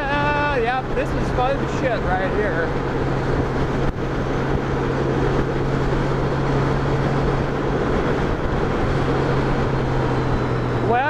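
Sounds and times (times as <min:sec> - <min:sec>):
motorcycle engine humming: 0:00.0 - 0:11.0
wind noise: 0:00.0 - 0:11.0.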